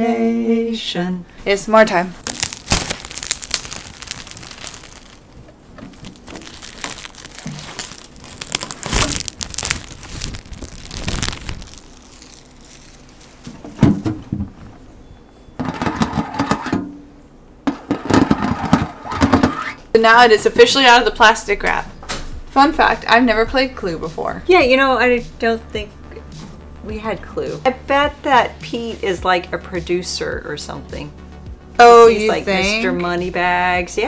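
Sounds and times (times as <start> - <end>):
plastic shrink wrap crinkling: 1.9 - 13.9.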